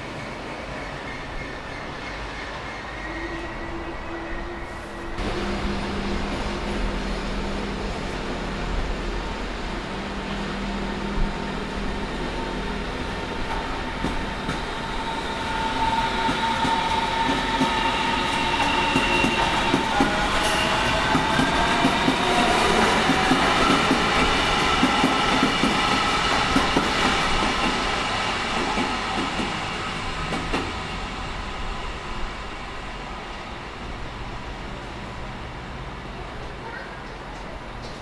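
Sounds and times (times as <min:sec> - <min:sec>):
train wheels clattering on rails: 0:13.3 - 0:31.0.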